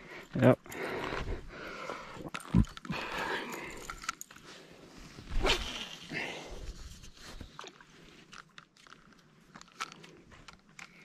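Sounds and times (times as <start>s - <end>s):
fishing reel clicks and rustles: 2.3s - 4.5s, 6.9s - 11.0s.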